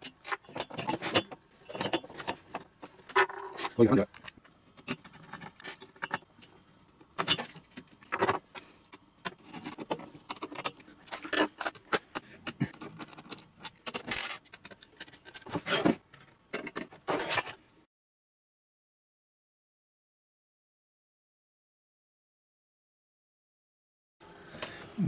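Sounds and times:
metal tools and parts clattering: 0:00.0 - 0:03.7, 0:07.2 - 0:07.7.

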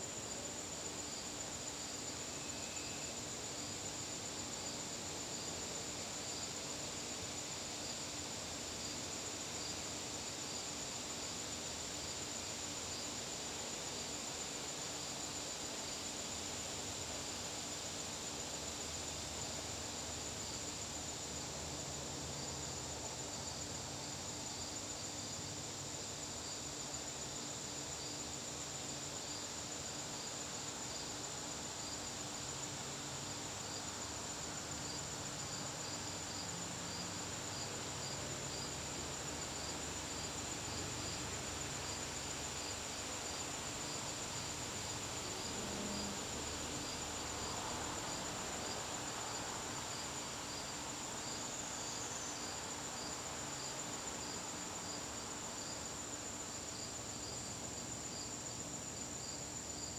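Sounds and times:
cricket high-pitched trill: 0:02.4 - 0:03.2.

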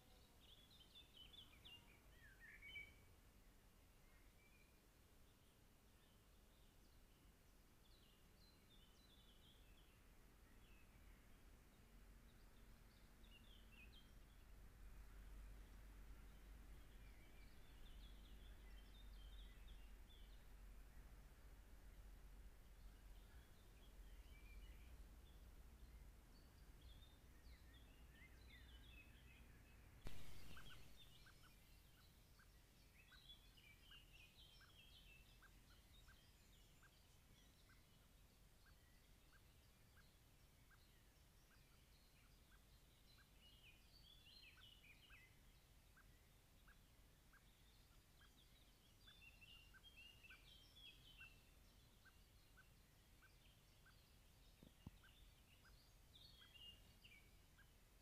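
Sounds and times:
birds chirping and trilling: 0:15.4 - 0:21.1, 0:22.6 - 0:58.0.

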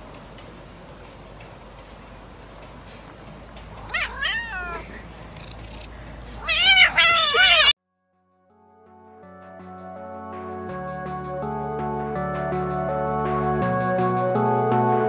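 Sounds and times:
cat meowing: 0:03.7 - 0:07.8.

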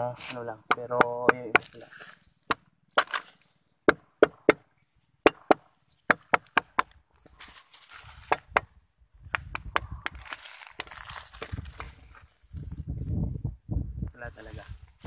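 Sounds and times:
knife chopping wood: 0:00.6 - 0:01.8, 0:02.4 - 0:03.3, 0:03.9 - 0:04.6, 0:05.2 - 0:07.0, 0:08.2 - 0:11.5.

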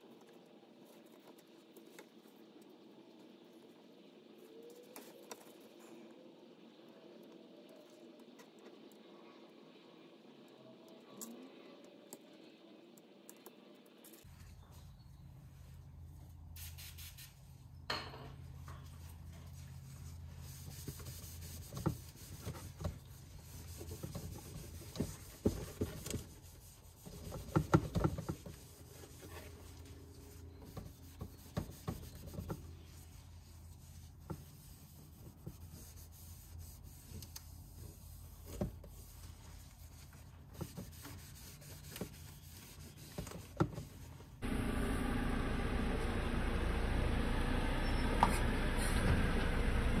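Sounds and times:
low hum: 0:44.4 - 0:50.0.

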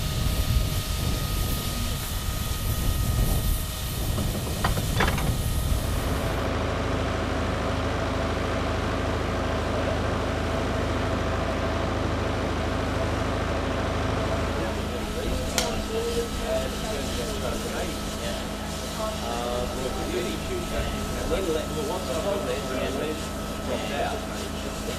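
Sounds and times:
steam locomotive hissing: 0:00.0 - 0:06.4, 0:14.6 - 0:24.9
low mechanical hum: 0:00.0 - 0:24.9.

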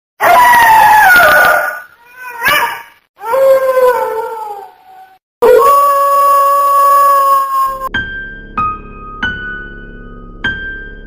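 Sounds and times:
dog howling: 0:00.2 - 0:07.9.

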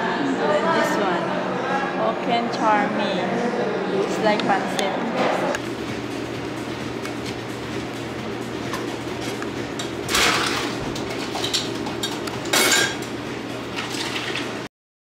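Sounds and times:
dishes and cutlery clinking: 0:08.7 - 0:13.1, 0:13.8 - 0:14.5.

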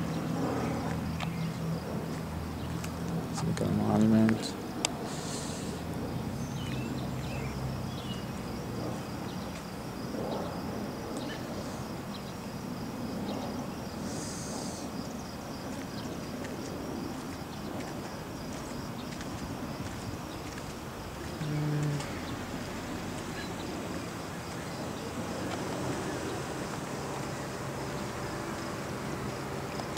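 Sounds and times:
insect chirping: 0:00.0 - 0:29.9
bird chirps: 0:06.4 - 0:08.4.

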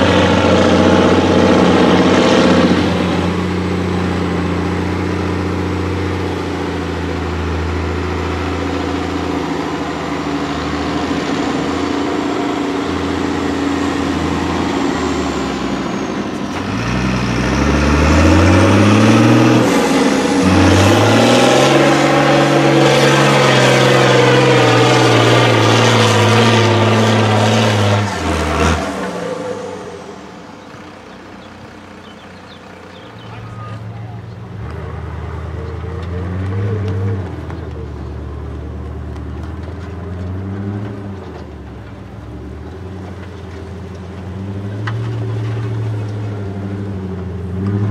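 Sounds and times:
diesel engine drone: 0:00.0 - 0:47.9
truck engine revving: 0:00.0 - 0:47.9.

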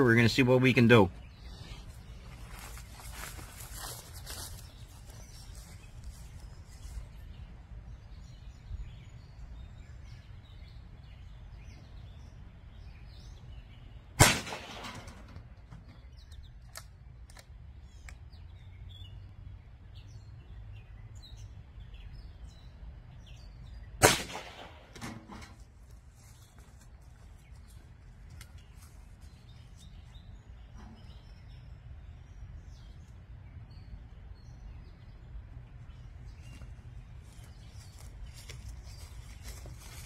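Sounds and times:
birds chirping faintly: 0:00.0 - 0:40.0
air pistol shots with echo: 0:14.2 - 0:15.5, 0:24.0 - 0:25.4.

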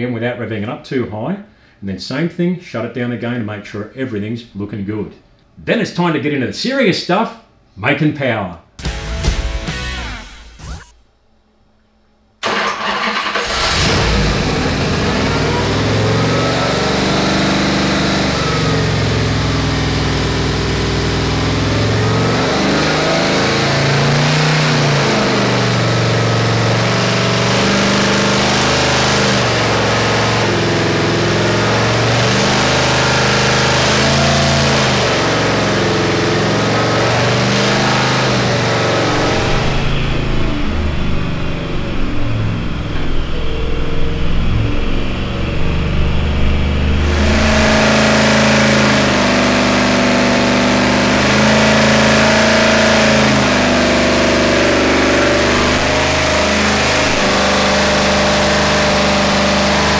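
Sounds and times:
logo sting: 0:08.8 - 0:11.1
engine starting and revving: 0:12.4 - 0:59.9.

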